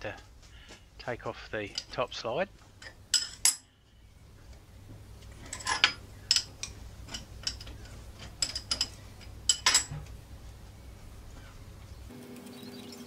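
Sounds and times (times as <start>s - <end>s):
spanner clicking on metal nuts: 5.4s - 9.9s.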